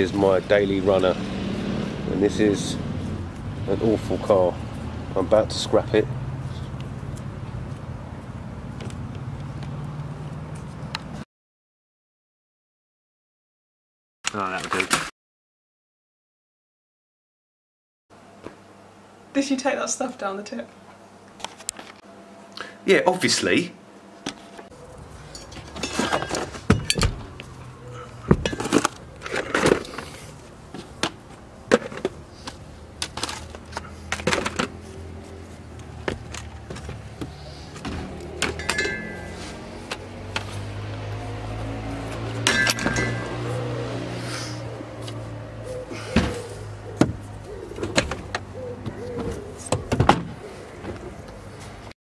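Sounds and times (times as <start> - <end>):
objects knocking and rattling: 25.2 - 27.2, 28.3 - 30.1, 30.8 - 34.8, 36.0 - 40.5
hard objects knocking and clunking: 28.2 - 30.0, 36.0 - 39.3.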